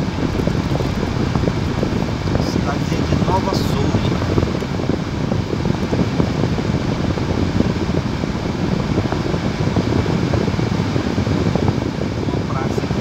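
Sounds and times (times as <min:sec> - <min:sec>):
car driving over cobblestones: 0:00.0 - 0:09.4.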